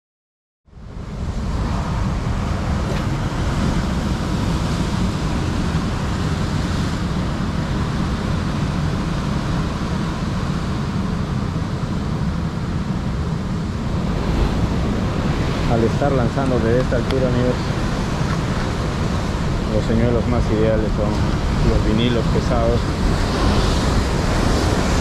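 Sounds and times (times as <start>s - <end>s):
wind buffeting microphone: 0.8s - 25.0s
surf breaking on rocks: 13.8s - 25.0s.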